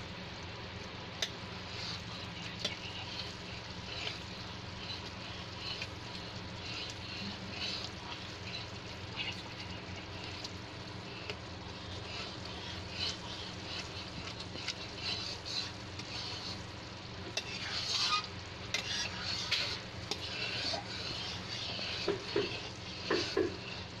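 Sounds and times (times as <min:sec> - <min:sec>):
syrup boiling and crackling: 0:00.0 - 0:24.0
steel spoon stirring: 0:01.2 - 0:24.0.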